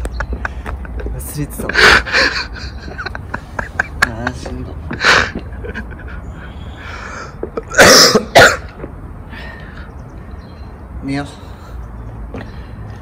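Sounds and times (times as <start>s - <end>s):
man coughing: 7.5s - 8.8s.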